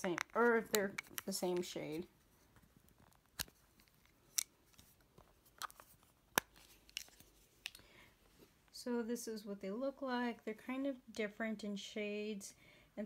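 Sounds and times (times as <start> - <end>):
compact lids snapping open: 3.4 - 4.8, 5.6 - 7.8.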